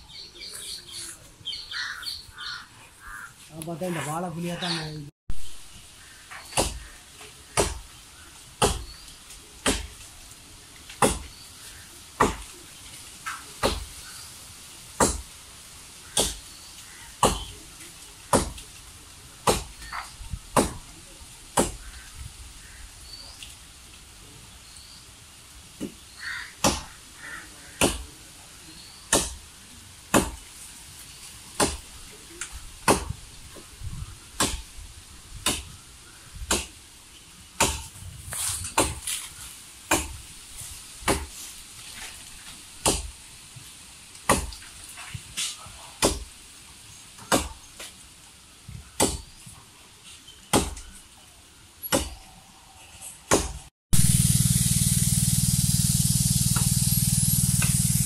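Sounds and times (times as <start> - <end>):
blade chopping into palm trunk: 38.6 - 39.3, 41.0 - 41.4, 42.8 - 43.1, 44.3 - 44.6, 46.0 - 46.3.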